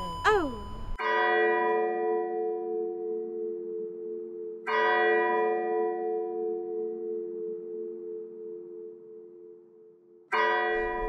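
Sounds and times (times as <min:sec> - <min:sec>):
deep bell tolling: 0:10.7 - 0:11.0.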